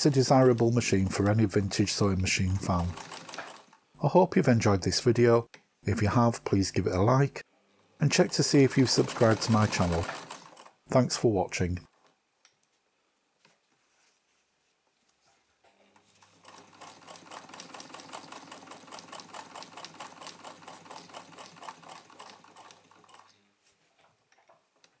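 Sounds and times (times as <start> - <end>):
sewing machine clatter: 0.0 - 3.8, 8.2 - 10.8, 16.2 - 23.3
sewing machine motor hum: 0.0 - 3.8, 8.2 - 10.8, 16.3 - 23.3.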